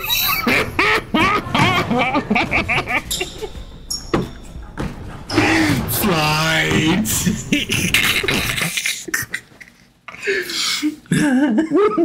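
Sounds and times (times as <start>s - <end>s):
man laughing hard: 0.0s - 3.6s, 7.0s - 9.8s, 11.1s - 12.0s.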